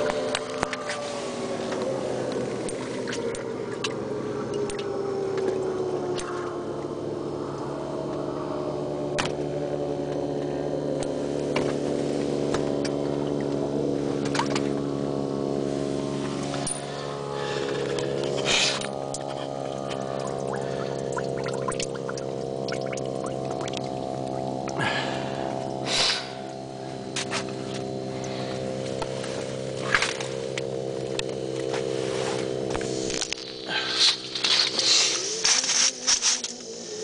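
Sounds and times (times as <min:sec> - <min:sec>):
steady droning hum: 0:00.0 - 0:37.0.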